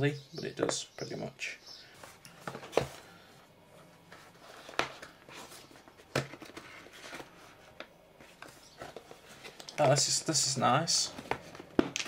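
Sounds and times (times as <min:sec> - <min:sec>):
cardboard scraping and rustling: 0:04.1 - 0:09.6.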